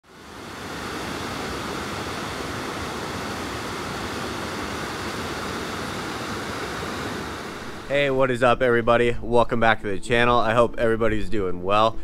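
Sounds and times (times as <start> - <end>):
creek rushing over rapids: 0.1 - 8.2.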